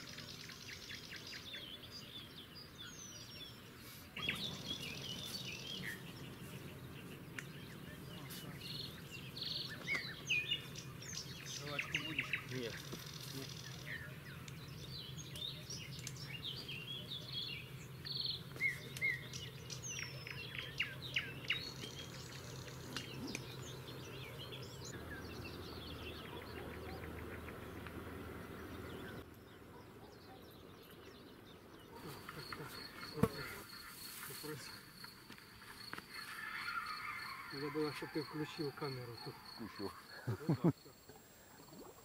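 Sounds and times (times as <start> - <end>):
small birds chirping: 0.0 - 42.0
insect trill: 32.1 - 42.0.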